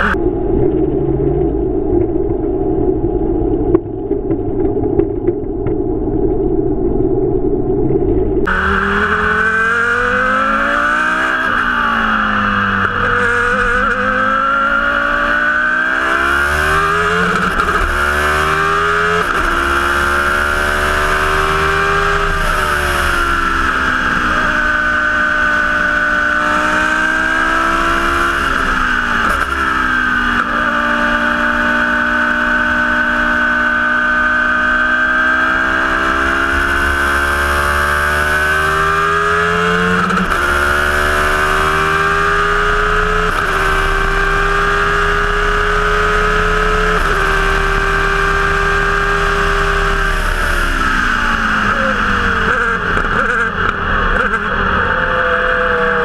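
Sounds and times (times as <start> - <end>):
wind noise: 0.0 - 11.7
racing car engine revving: 8.4 - 56.0.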